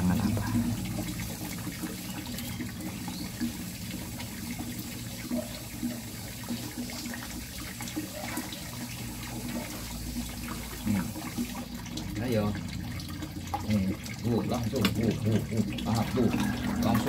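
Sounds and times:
water stream pouring into pond: 0.0s - 17.0s.

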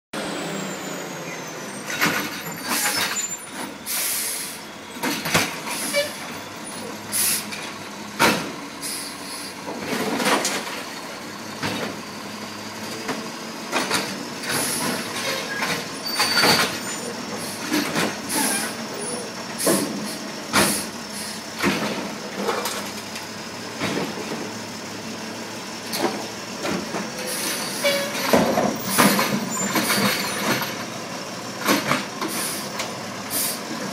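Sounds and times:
garbage truck engine running: 0.2s - 33.9s
short air hisses: 3.9s - 4.6s, 7.1s - 7.5s, 32.3s - 32.7s
lifting arm and carts clanking: 9.6s - 24.8s, 25.8s - 33.9s.

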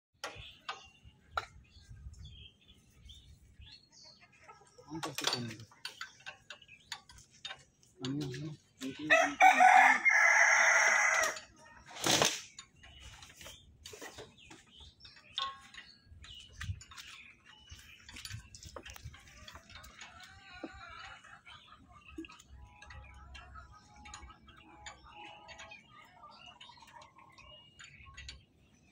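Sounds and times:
rooster crowing: 9.1s - 11.4s
clicks and knocks on engine: 12.5s - 20.8s.

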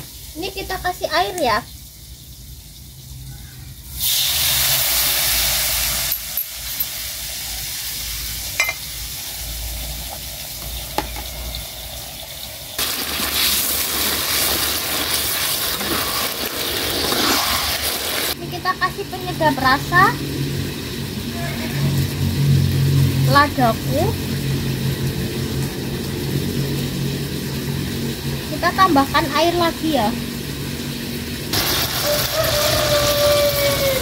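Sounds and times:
sizzling hiss: 0.0s - 34.0s
water poured into hot wok: 1.6s - 18.4s, 30.2s - 34.0s.

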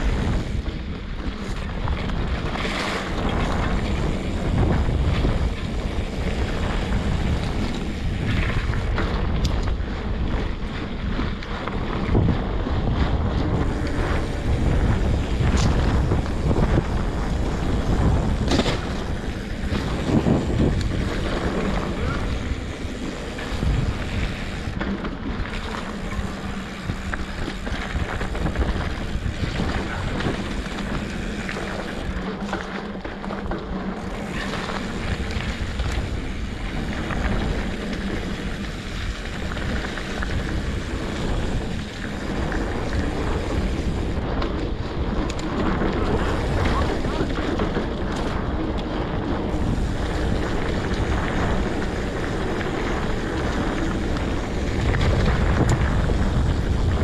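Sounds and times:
low rumble: 0.0s - 57.0s
wind buffeting microphone: 0.0s - 57.0s.

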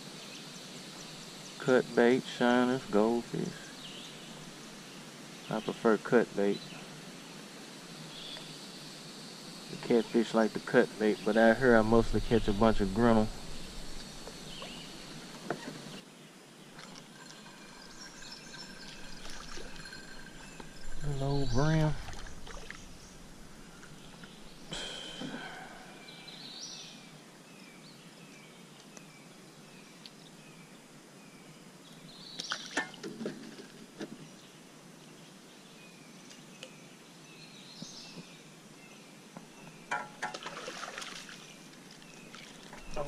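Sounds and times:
bird chirping: 0.2s - 7.4s, 8.0s - 16.0s, 16.6s - 32.8s, 41.1s - 43.0s
fish splashing at water surface: 18.6s - 20.5s, 22.0s - 23.1s, 40.0s - 42.7s.

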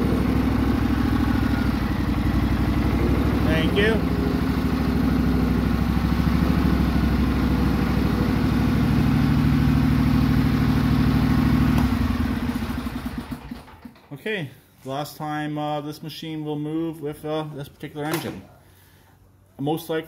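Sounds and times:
lawn tractor engine running: 0.0s - 14.1s.

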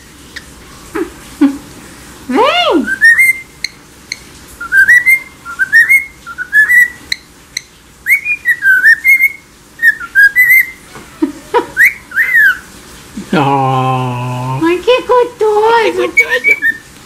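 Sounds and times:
cockatiel whistling: 2.8s - 7.2s, 8.0s - 10.8s, 11.8s - 12.7s, 16.2s - 16.9s.

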